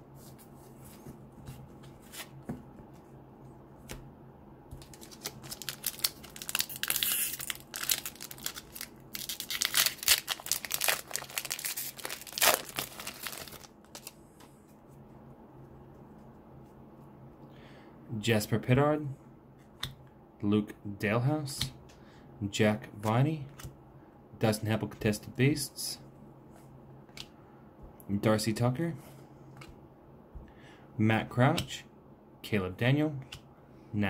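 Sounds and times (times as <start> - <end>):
foil wrapper crackling: 4.8 - 14.2.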